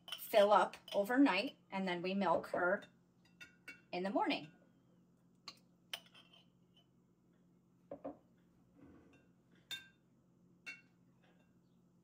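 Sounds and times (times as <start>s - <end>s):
metal spoon clinking on glass jars: 0.0s - 1.6s, 2.7s - 4.5s, 5.5s - 6.5s, 9.1s - 10.0s, 10.6s - 11.6s.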